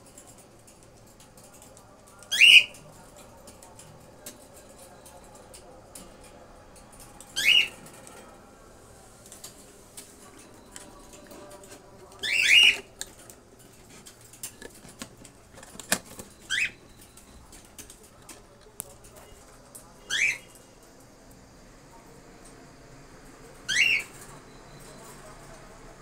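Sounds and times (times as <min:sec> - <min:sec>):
cockatiels calling: 0:02.3 - 0:02.8, 0:07.4 - 0:07.8, 0:12.2 - 0:12.9, 0:16.5 - 0:16.9, 0:20.1 - 0:20.5, 0:23.6 - 0:24.2.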